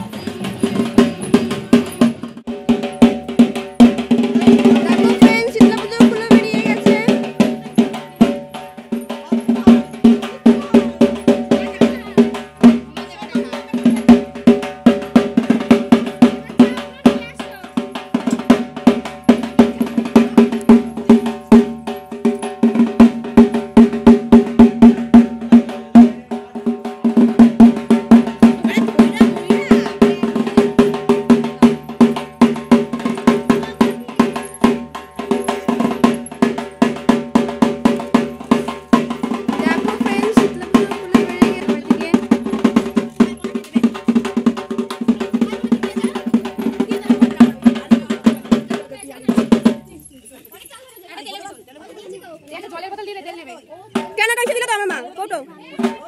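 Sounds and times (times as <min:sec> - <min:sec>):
fast steady drumming: 0:00.0 - 0:50.1, 0:53.9 - 0:56.0.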